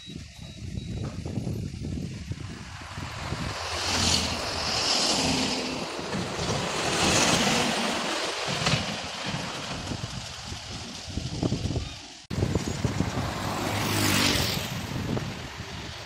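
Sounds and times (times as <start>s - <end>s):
vehicles passing at speed: 1.2s - 16.0s
low engine drone: 2.0s - 11.3s.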